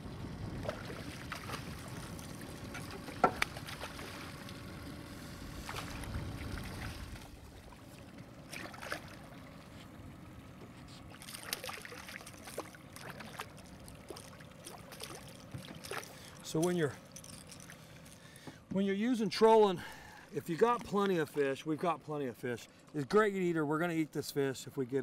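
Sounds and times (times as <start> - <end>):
water splashing: 0.5 - 4.7, 5.5 - 9.9, 11.0 - 18.2.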